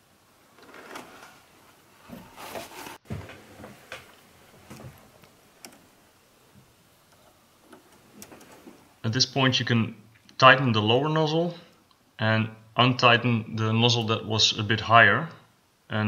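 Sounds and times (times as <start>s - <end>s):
faint handling clicks and knocks: 2.0s - 8.9s.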